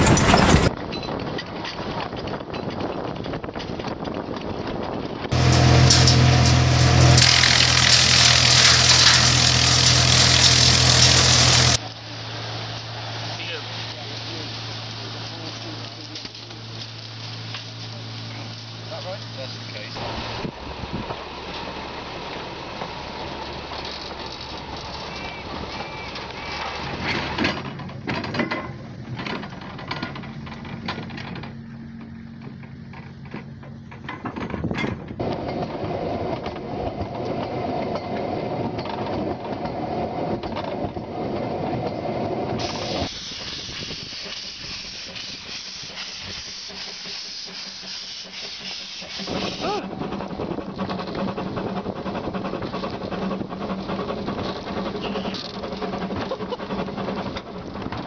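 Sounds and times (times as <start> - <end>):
steam hissing: 0.0 - 0.7, 5.3 - 26.9, 42.6 - 55.6
steam locomotive running: 0.0 - 0.7, 2.9 - 58.0
wagons knocking and clanking: 0.0 - 11.8, 22.8 - 43.0, 49.2 - 58.0
train on snowy track: 0.0 - 58.0.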